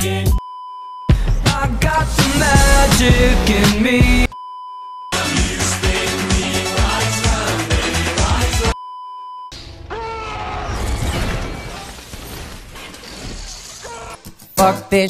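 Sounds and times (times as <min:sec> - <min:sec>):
pop music: 0:00.0 - 0:00.4, 0:01.1 - 0:04.4, 0:05.1 - 0:08.8.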